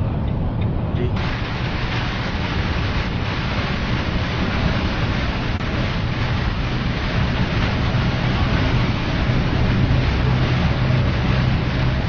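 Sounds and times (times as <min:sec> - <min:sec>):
truck engine and road rumble: 0:00.0 - 0:12.0
rain hissing on windscreen: 0:01.2 - 0:12.0.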